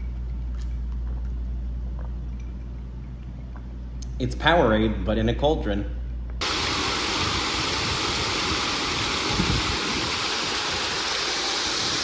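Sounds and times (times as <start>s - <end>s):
rush of falling water: 6.4s - 12.0s.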